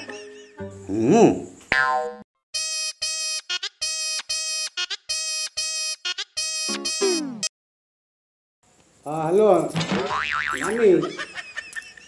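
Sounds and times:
phone ringtone melody: 2.6s - 7.2s.

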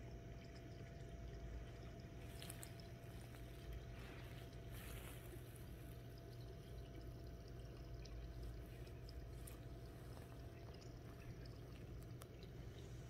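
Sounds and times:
faint ticks and drips: 0.0s - 13.0s
steady low rumble: 0.8s - 13.0s.

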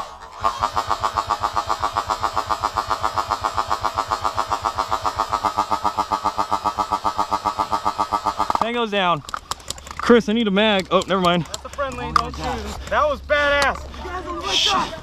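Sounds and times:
airsoft gun full-auto burst: 0.4s - 8.7s.

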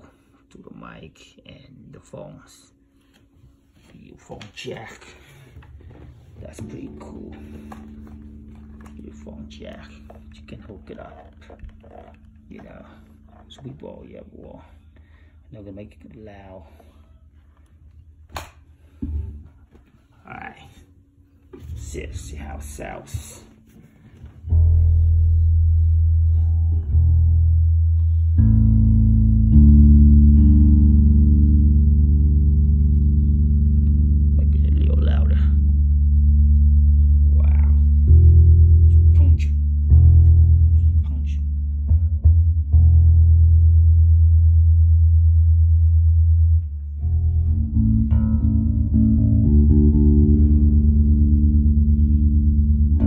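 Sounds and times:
bass guitar low notes: 4.2s - 53.0s.

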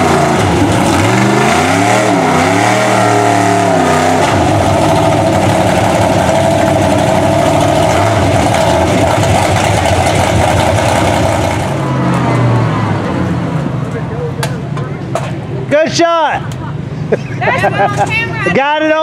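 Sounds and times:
tires churning muddy water: 0.0s - 12.7s
truck engine revving: 0.0s - 13.9s.

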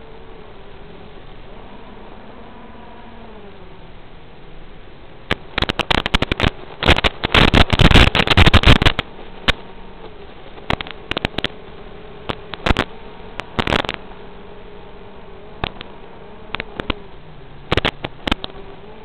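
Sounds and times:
faint hum: 0.0s - 19.0s
steady hiss: 0.0s - 19.0s
crackling clicks: 5.3s - 14.3s, 15.5s - 19.0s.

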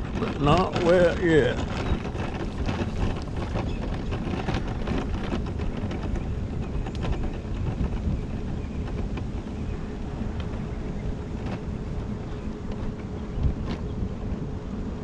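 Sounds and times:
tyre and road noise: 0.0s - 15.0s
wind rushing over microphone: 0.0s - 15.0s.

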